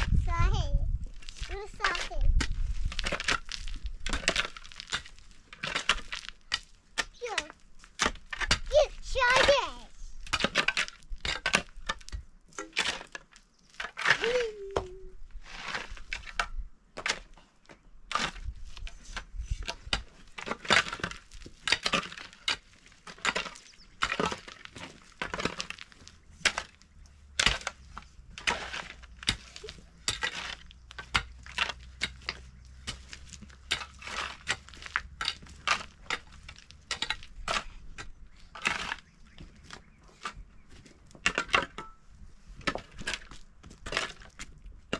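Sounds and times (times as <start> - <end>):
shovel scraping stony soil: 1.1 - 14.6, 15.3 - 17.4, 18.1 - 44.6
stones clinking against steel: 27.4 - 39.0.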